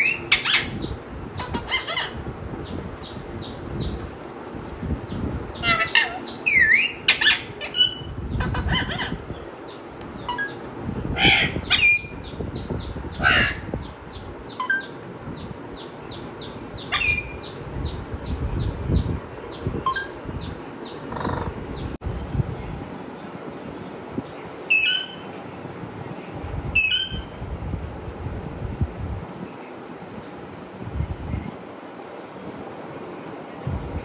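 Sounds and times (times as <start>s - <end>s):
faint bird chirping: 0.0s - 27.8s
parrot whistles and squawks: 5.6s - 9.2s, 24.7s - 25.3s, 26.8s - 27.3s.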